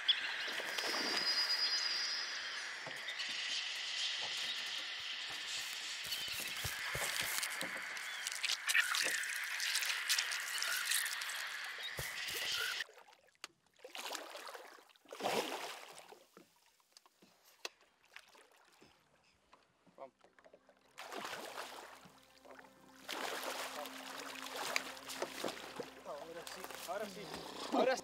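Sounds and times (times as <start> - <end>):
hiss with high buzzing: 0.0 - 12.8
fish splashing in water: 6.1 - 13.1, 13.8 - 16.2, 21.0 - 22.2, 23.0 - 26.0.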